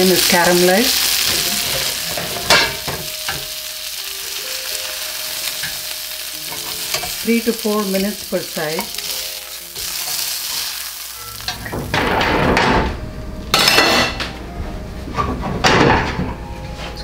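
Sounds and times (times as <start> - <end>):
pan and tongs clattering: 0.0 - 3.5, 5.4 - 12.9, 13.5 - 14.4
skillet sizzling: 0.0 - 14.2.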